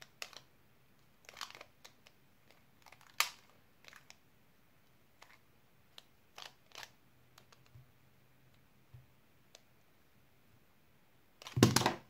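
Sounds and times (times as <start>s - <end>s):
puzzle cube clicking: 0.0s - 0.5s, 1.2s - 4.2s, 5.2s - 7.7s, 11.4s - 12.0s.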